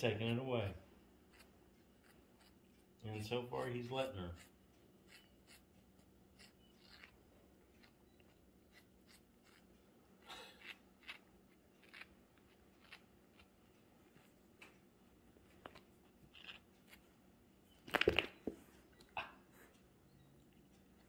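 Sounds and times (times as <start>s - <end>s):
cats scratching fabric toy: 1.1s - 14.6s.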